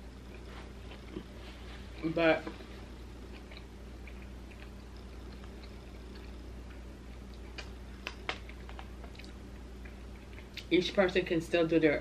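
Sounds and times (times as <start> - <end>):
room hum: 0.0 - 12.0
eating clicks and smacks: 3.3 - 10.7.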